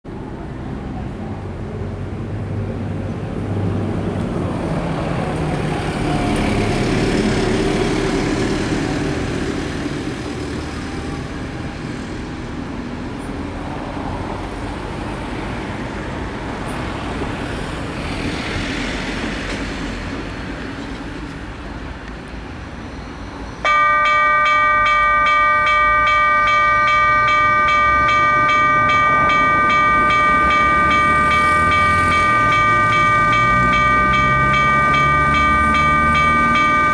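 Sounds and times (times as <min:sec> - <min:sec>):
locomotive air horn chord: 0:23.6 - 0:36.9.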